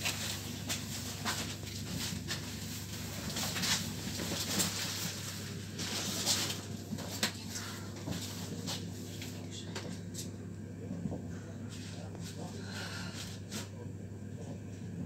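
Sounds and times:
train interior low hum: 0:00.0 - 0:15.0.

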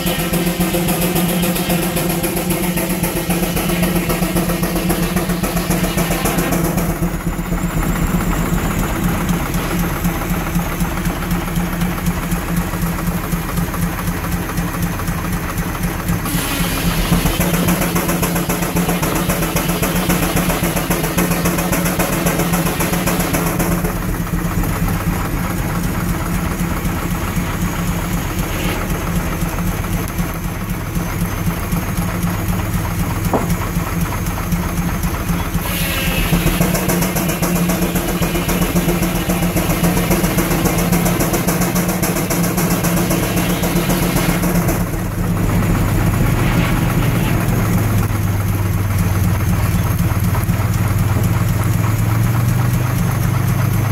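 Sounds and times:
loud steam hiss: 0:00.0 - 0:11.0, 0:15.6 - 0:24.0, 0:35.3 - 0:48.2
mechanical clatter: 0:00.0 - 0:53.9
steam engine exhaust beats: 0:00.0 - 0:53.9.

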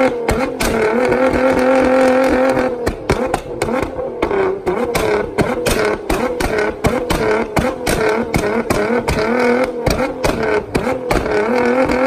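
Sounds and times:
car engine revving: 0:00.0 - 0:12.0
exhaust pops and bangs: 0:00.0 - 0:12.0.

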